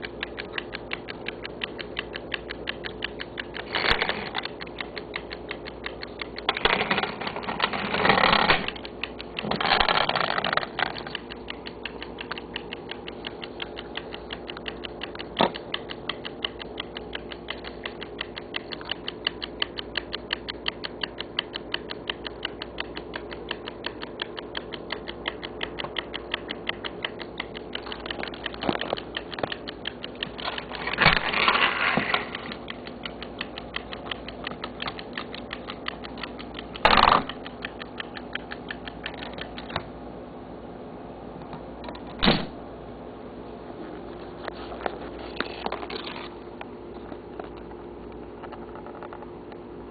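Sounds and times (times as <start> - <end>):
mechanical rattling: 0.0 - 20.0, 21.4 - 39.8
clockwork mechanism ticking: 0.0 - 40.0.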